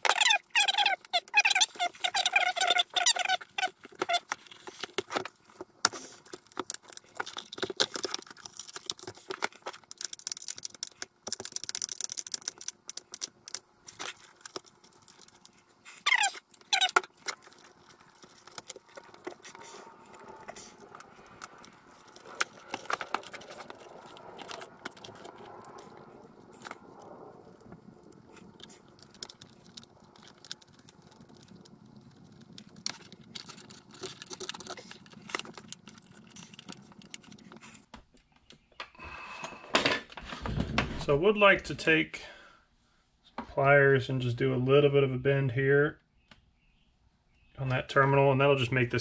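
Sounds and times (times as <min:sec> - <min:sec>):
small metal parts rattling: 0:06.4 - 0:19.2.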